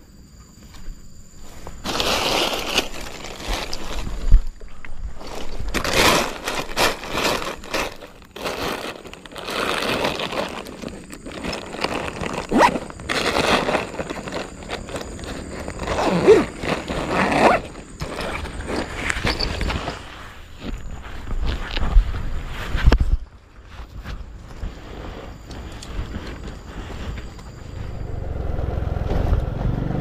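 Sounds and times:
backpack and plastic bag rustling: 0:01.4 - 0:27.9.

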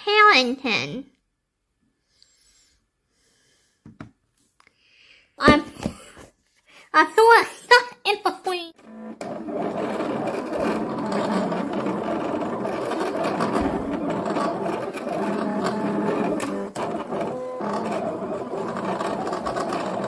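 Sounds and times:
cutting machine whirring: 0:08.8 - 0:20.0.

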